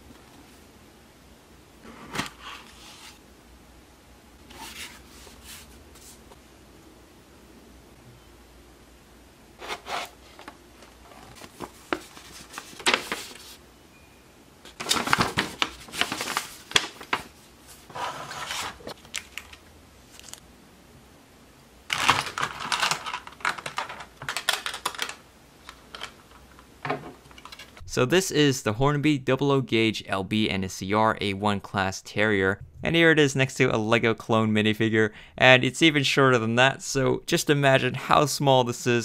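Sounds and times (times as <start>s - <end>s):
paper rustling: 9.6s - 13.6s, 14.7s - 20.4s
plastic tray clicking and crinkling: 21.9s - 26.5s.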